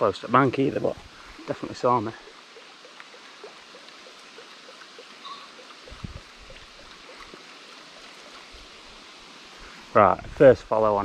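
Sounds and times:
soft hiss: 0.0s - 11.0s
faint ticks: 2.1s - 8.6s.

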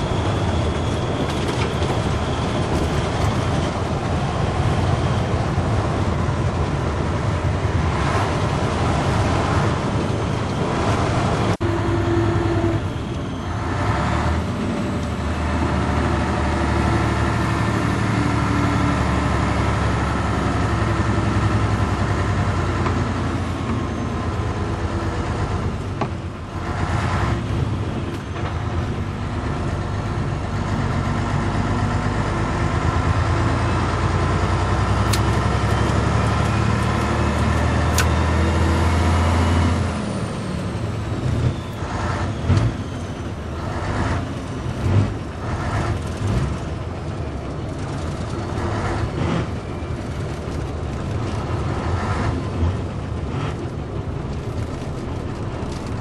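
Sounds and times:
diesel truck engine running: 0.0s - 56.0s
sharp gearbox click: 35.1s - 35.4s, 37.9s - 38.2s.

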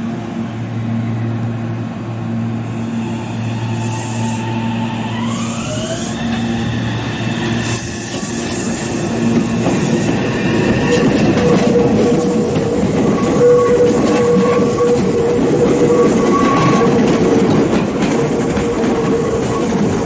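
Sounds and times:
electric train low hum: 0.0s - 20.0s
rising motor whine: 0.3s - 11.6s
wheels clicking over rail joints: 9.2s - 20.0s.

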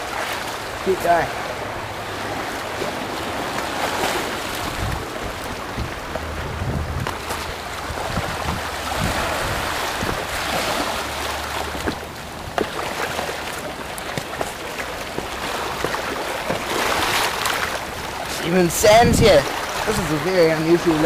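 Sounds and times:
waves washing over stones: 0.0s - 21.0s
wind rumble on microphone: 0.0s - 21.0s
footsteps on pebbles: 14.0s - 16.8s.

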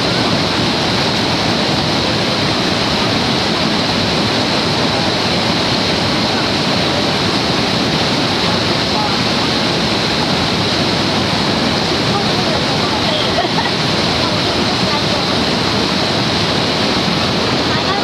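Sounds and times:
white water rushing: 0.0s - 18.0s.

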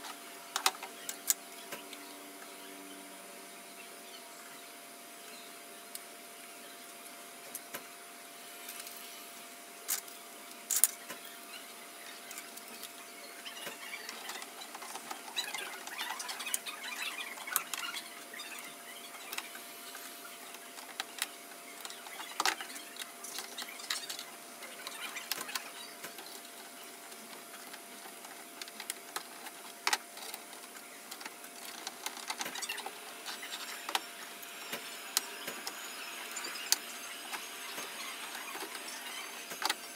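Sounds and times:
faint steady hum: 0.0s - 39.9s
plastic parts clicking and scraping: 20.5s - 34.1s, 34.8s - 39.9s.

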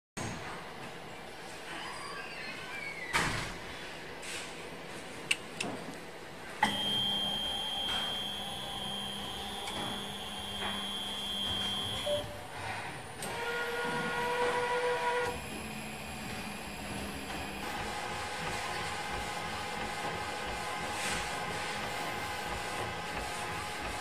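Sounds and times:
high-pitched motor whine: 6.6s - 12.5s
lower-pitched motor whine: 6.6s - 20.8s.

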